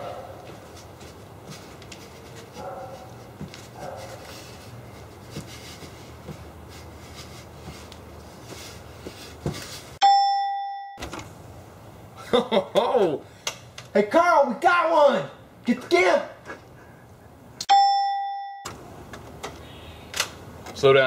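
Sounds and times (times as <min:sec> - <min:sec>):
doorbell chime: 0:10.0 - 0:11.0, 0:17.7 - 0:18.7.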